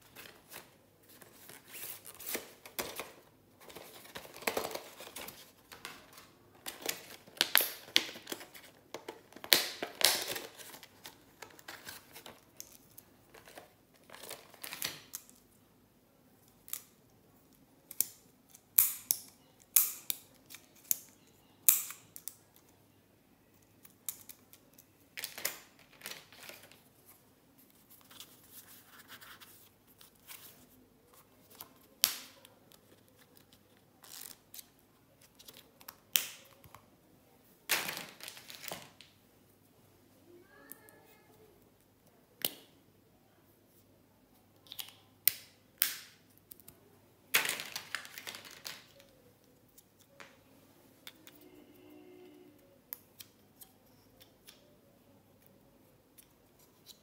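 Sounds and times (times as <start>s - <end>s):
plastic packaging crinkling: 37.7s - 39.0s, 47.3s - 49.1s.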